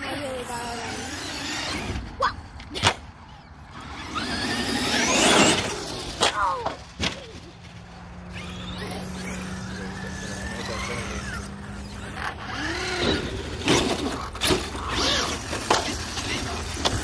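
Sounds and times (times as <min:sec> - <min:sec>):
electric toy truck motor whining: 0:00.0 - 0:02.2, 0:03.7 - 0:06.6, 0:08.2 - 0:17.0
truck clacking on concrete: 0:11.7 - 0:17.0.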